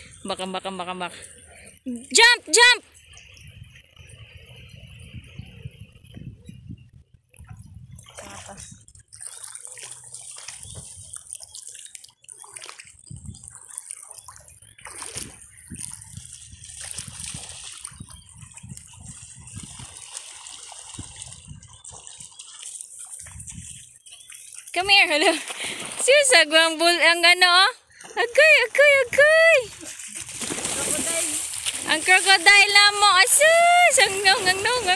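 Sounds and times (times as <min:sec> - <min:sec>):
water sloshing and lapping: 0:00.0 - 0:34.9.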